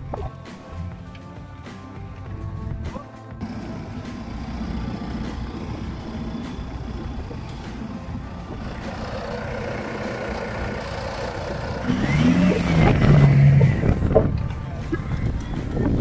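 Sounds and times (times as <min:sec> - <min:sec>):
engine revving: 0:03.4 - 0:14.8
vehicle engines rumbling: 0:03.4 - 0:16.0.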